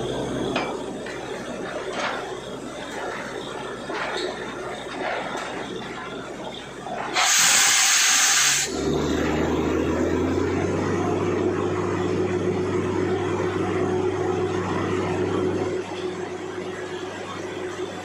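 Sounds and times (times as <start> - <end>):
drilling rig engine and compressor drone: 0.0 - 18.0
loud blast of hissing air: 7.2 - 9.0.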